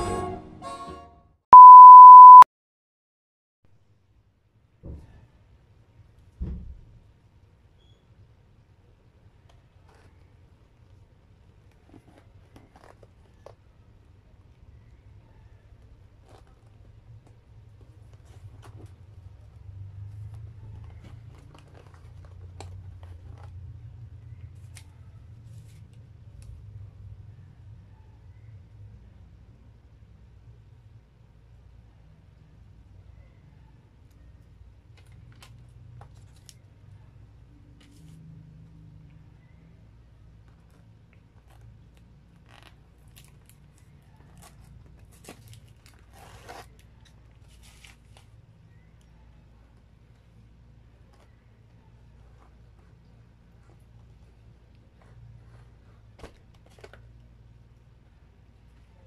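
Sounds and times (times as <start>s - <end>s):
paper crinkling and tearing: 42.4s - 48.4s.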